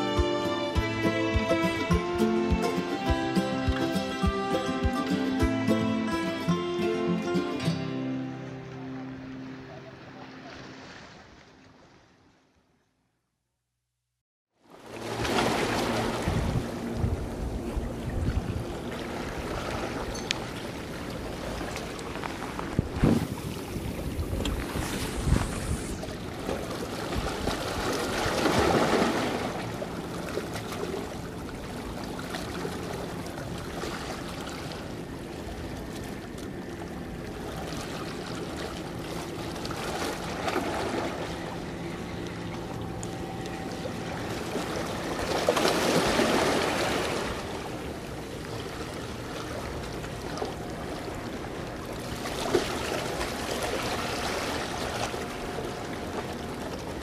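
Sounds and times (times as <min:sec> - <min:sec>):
waves splashing among concrete blocks: 0:14.7 - 0:17.0, 0:18.9 - 0:35.0, 0:43.8 - 0:50.9.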